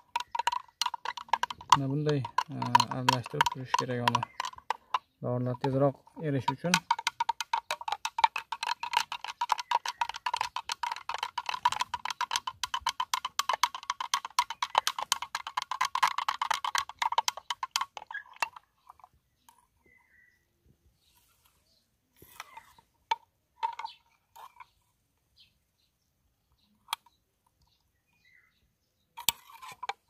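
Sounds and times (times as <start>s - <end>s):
spoon clicking against glass jar: 0.0s - 18.6s.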